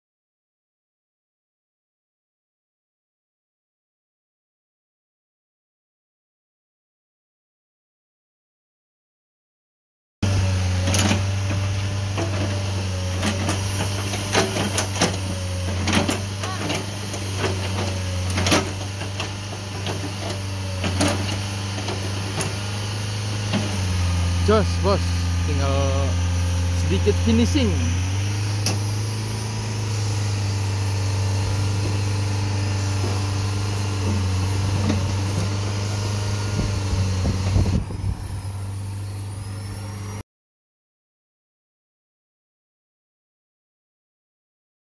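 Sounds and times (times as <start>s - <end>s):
excavator diesel engine running: 10.2s - 40.2s
machine clanking: 13.2s - 22.6s.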